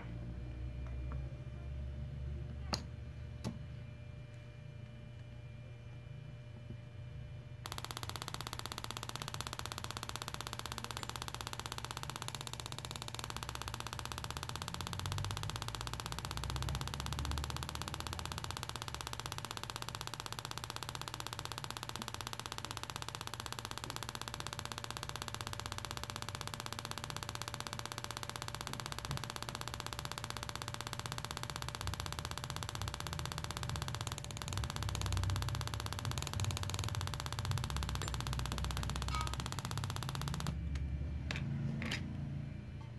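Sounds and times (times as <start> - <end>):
rapid ticking buzz of sparks: 7.7 - 40.7.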